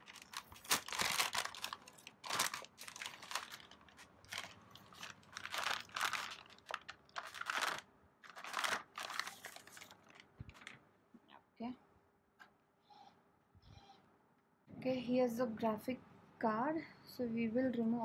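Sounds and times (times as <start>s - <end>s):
packaging crinkling and rustling: 0.0s - 10.8s.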